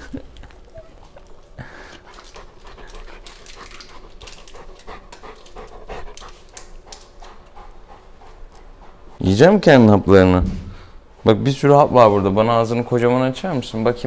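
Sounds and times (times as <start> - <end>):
dog panting: 1.2 - 9.2.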